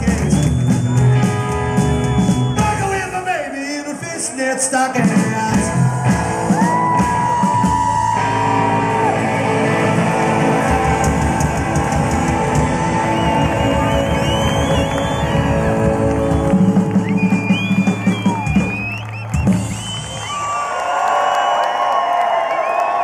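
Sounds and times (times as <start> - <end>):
rockabilly band playing live: 0.0 - 3.3, 5.0 - 20.0
crowd yelling: 5.4 - 23.0.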